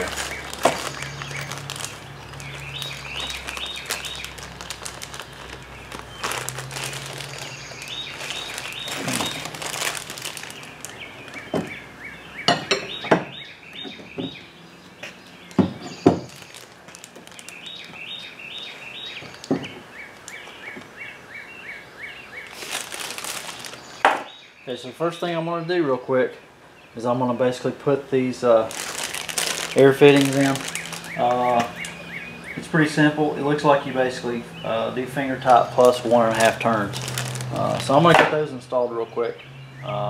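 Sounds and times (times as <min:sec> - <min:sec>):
plastic bags crinkling: 0:00.0 - 0:11.8, 0:15.4 - 0:20.9, 0:22.3 - 0:24.2, 0:28.4 - 0:32.9, 0:34.8 - 0:38.2
small bird chirping: 0:00.0 - 0:24.7, 0:28.8 - 0:32.8.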